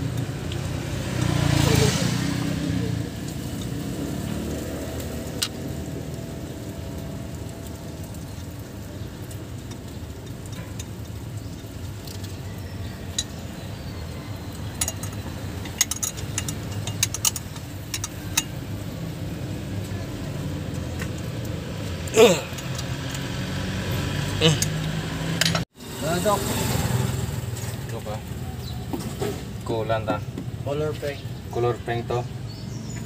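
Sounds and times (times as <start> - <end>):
metal clinks of wrench on nuts: 14.7 - 18.6.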